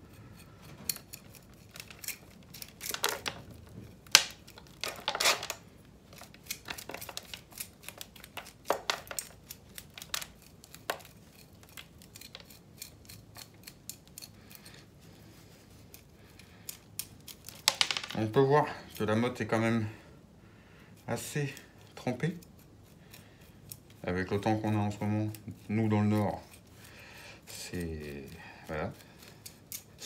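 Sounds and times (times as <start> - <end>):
rake scraping roots: 0.0 - 14.7.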